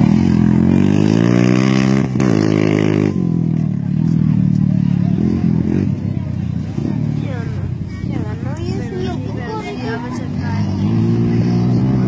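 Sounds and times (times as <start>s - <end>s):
motorcycle engine revving: 0.0s - 8.4s, 9.5s - 12.0s.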